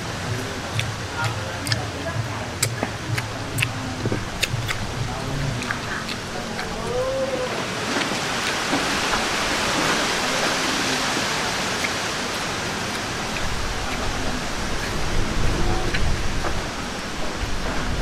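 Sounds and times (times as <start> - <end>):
low rumble: 0.0 - 7.7, 13.1 - 18.0
heavy rain hissing: 0.0 - 18.0.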